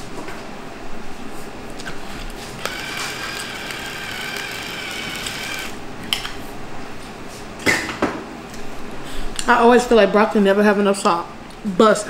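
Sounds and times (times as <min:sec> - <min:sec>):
electric salt grinder whining: 0:02.6 - 0:05.8.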